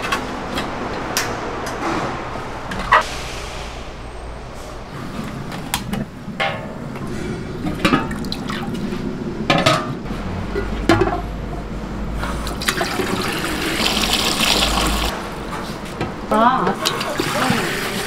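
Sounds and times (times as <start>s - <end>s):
metal pots clanking: 6.4s - 11.4s
hose water splashing into pots: 12.2s - 15.2s, 16.8s - 18.0s.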